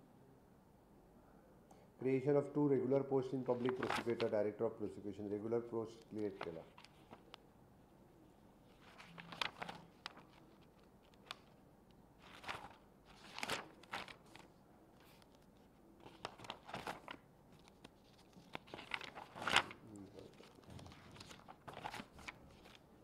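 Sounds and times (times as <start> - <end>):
paper rustling and crinkling: 3.4 - 4.4, 6.0 - 7.4, 8.7 - 11.6, 12.2 - 23.0.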